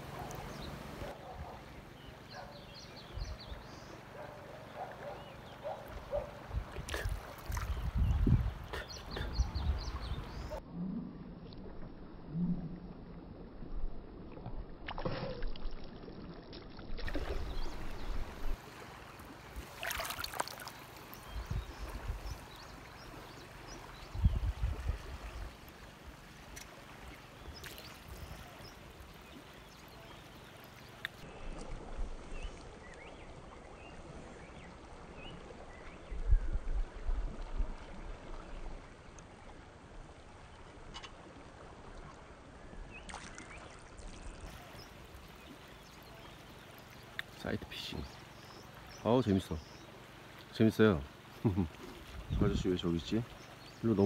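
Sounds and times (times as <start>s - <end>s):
river water running over rocks: 14.5s - 35.8s.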